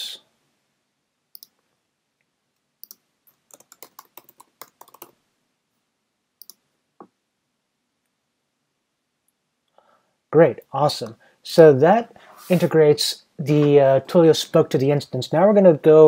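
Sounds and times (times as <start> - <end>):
faint keyboard typing: 1.3 - 5.2, 6.4 - 7.1.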